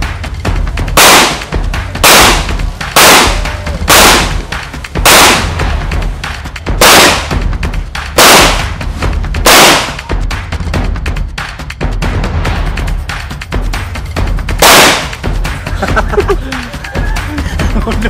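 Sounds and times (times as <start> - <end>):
bass line of background music: 0.0 - 18.0
pistol shots: 1.0 - 5.7, 6.8 - 7.4, 8.2 - 8.8, 9.4 - 10.1, 14.6 - 15.2.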